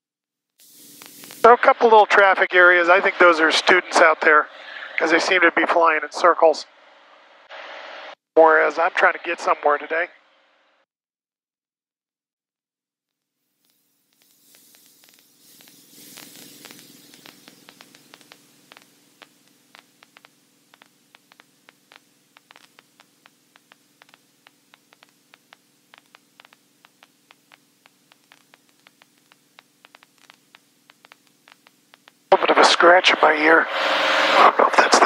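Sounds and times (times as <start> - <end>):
burst of hiss: 0.6 - 1.7, 13.6 - 19.3, 33.7 - 34.5
crackling static clicks: 0.6 - 6.5, 13.1 - 35.0
steady low hum: 0.6 - 10.8, 14.0 - 35.0.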